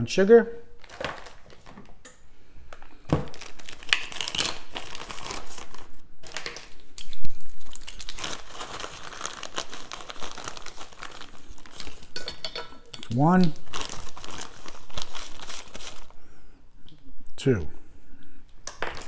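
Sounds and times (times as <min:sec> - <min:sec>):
plastic bag crinkling: 0:00.8 - 0:02.0, 0:03.1 - 0:06.8, 0:07.5 - 0:12.2, 0:13.3 - 0:16.2.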